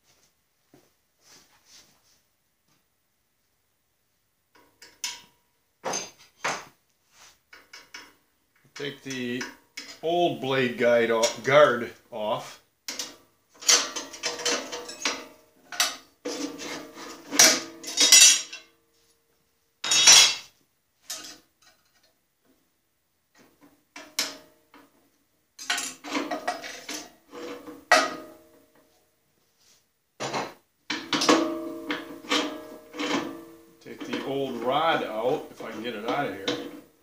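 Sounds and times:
metal parts clinking and scraping: 0:12.9 - 0:18.7, 0:19.8 - 0:20.5.

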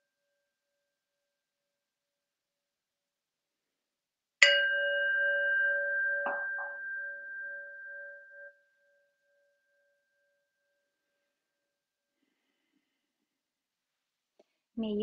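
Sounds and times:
meditation bell ringing: 0:04.4 - 0:11.7.

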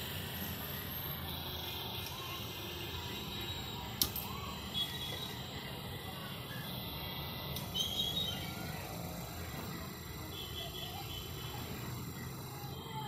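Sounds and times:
high chirps: 0:00.2 - 0:09.3.

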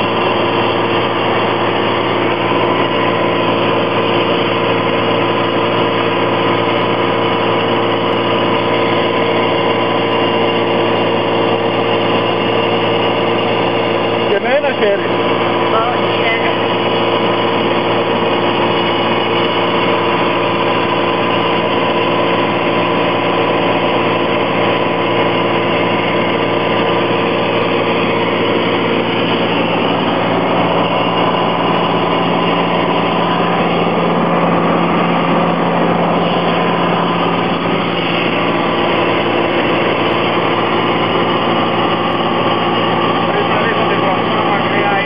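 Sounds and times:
aircraft engine and propeller drone: 0:00.0 - 0:45.0.

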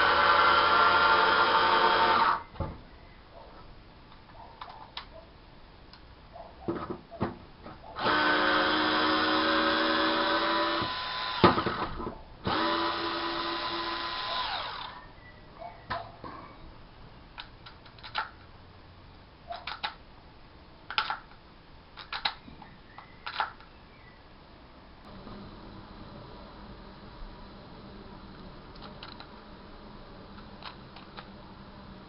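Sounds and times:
cordless screwdriver motor whine: 0:12.5 - 0:15.0.

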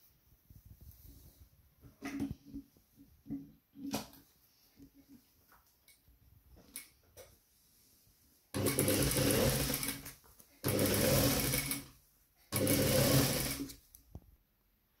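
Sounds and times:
industrial sewing machine stitching: 0:08.6 - 0:11.9, 0:12.5 - 0:13.8.

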